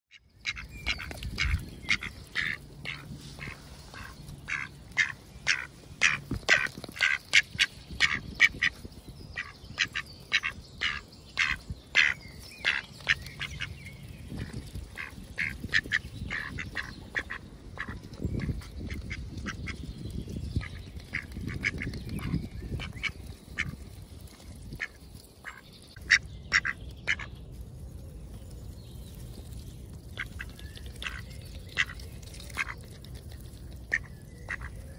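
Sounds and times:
ducks quacking: 0:00.4 - 0:08.8, 0:09.4 - 0:13.7, 0:14.4 - 0:19.8, 0:24.7 - 0:27.3, 0:33.9 - 0:34.8.

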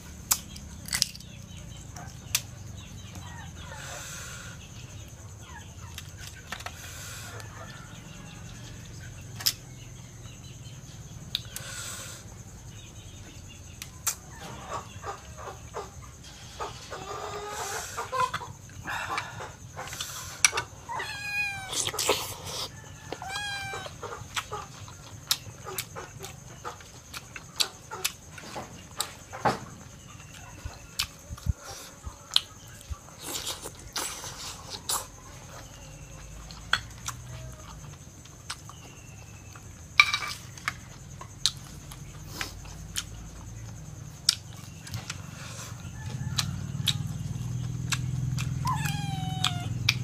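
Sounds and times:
eggshell cracking and peeling: 0:00.3 - 0:01.4
eating sounds: 0:16.7 - 0:29.4, 0:30.0 - 0:50.0
pet animal crying: 0:20.8 - 0:22.1, 0:23.1 - 0:24.3, 0:48.4 - 0:50.0.

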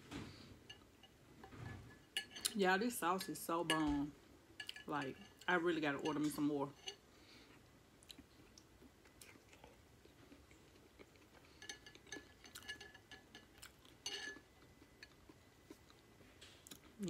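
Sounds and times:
fork clinking against glass bowl: 0:00.7 - 0:02.6, 0:04.6 - 0:07.0, 0:11.6 - 0:15.2
quiet chewing: 0:07.4 - 0:17.0.

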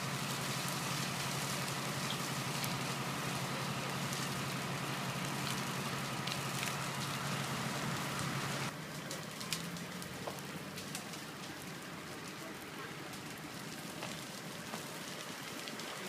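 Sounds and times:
bush fire crackling: 0:00.0 - 0:16.0.

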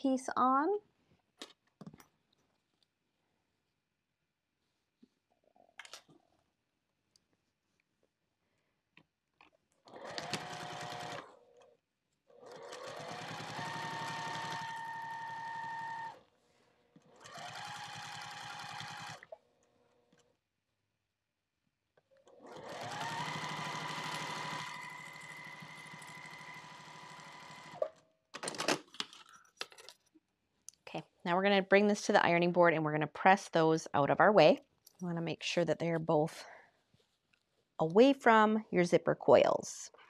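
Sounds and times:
sewing machine motor whining: 0:09.9 - 0:11.4, 0:12.4 - 0:16.2, 0:17.0 - 0:19.3, 0:22.4 - 0:27.9.

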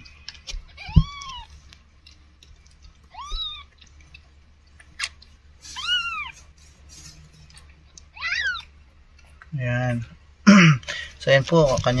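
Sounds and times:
kittens mewing: 0:00.6 - 0:01.5, 0:03.1 - 0:03.8, 0:05.6 - 0:06.6, 0:08.0 - 0:08.8.

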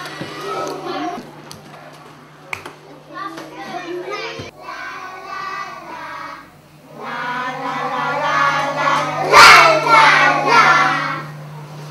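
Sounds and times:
young children singing: 0:03.4 - 0:11.5.

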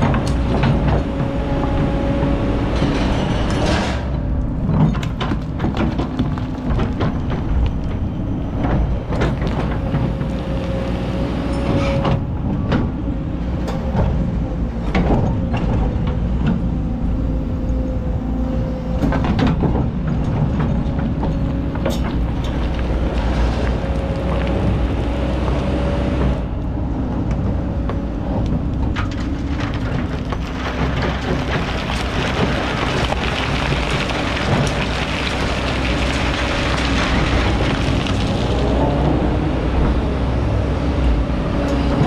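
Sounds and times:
diesel engine under load: 0:00.0 - 0:42.0
bucket scraping sand and stones: 0:29.2 - 0:38.8.

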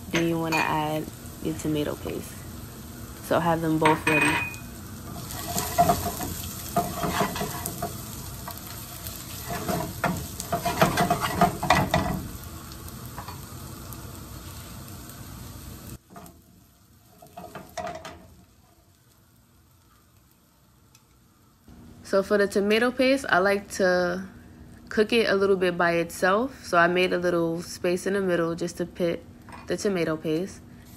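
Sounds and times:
vegetables sizzling in a skillet: 0:00.0 - 0:29.1
spatula scraping a pan: 0:04.2 - 0:12.2.

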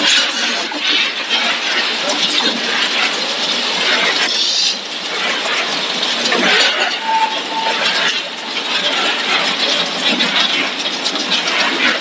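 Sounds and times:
conveyor machinery noise: 0:00.0 - 0:12.0.

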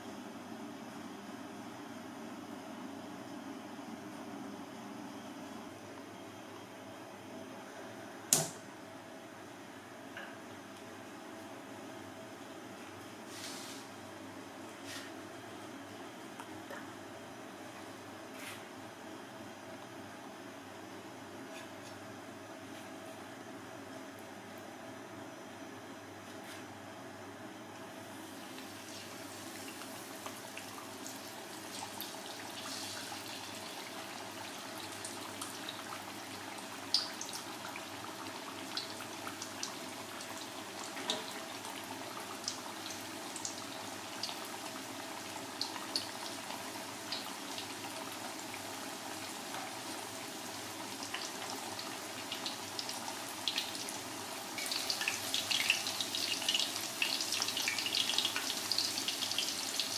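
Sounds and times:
chicken deep-frying in oil: 0:28.1 - 0:59.9.

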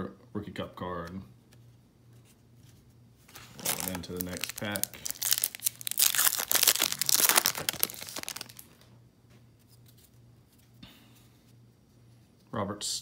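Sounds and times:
foil wrapper tearing and crinkling: 0:03.4 - 0:08.8.

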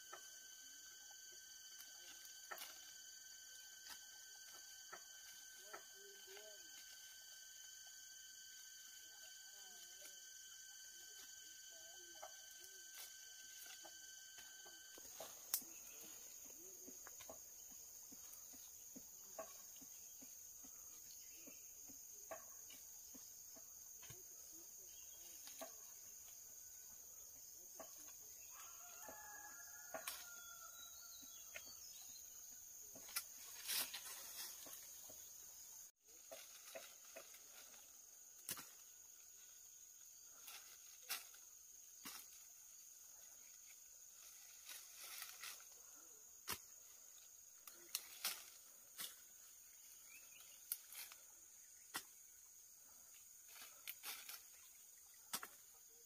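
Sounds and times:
high-pitched hum: 0:00.0 - 0:18.8
faint chicken calls: 0:26.7 - 0:38.0.

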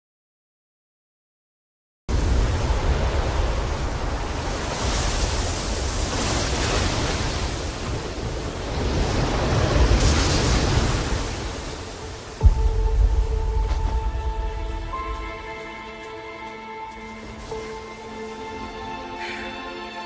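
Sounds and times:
waves breaking on shore: 0:02.1 - 0:15.8.

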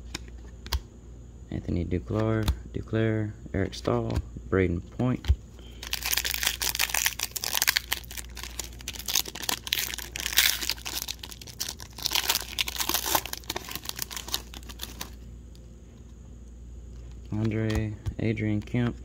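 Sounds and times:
foil wrapper tearing and crinkling: 0:05.8 - 0:15.2.

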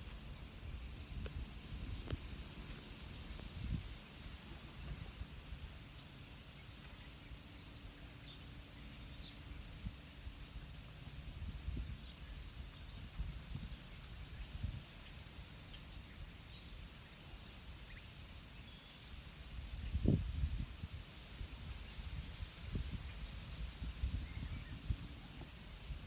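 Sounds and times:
distant birds chirping: 0:00.0 - 0:20.2
low woodland rumble: 0:00.0 - 0:26.0.

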